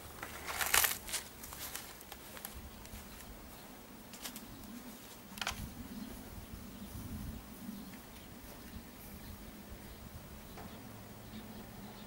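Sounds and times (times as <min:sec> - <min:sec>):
soft rustles: 0:00.2 - 0:06.3.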